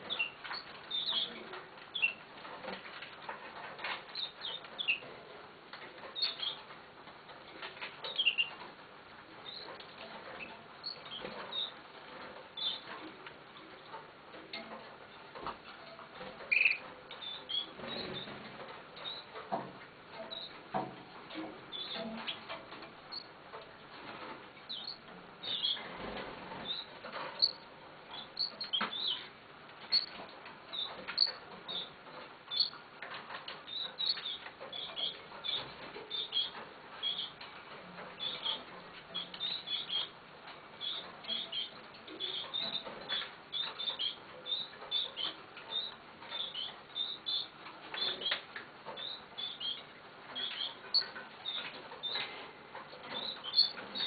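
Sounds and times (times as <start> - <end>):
nestlings cheeping: 26.6 - 29.3, 29.9 - 31.9, 32.5 - 32.8, 53.2 - 54.0.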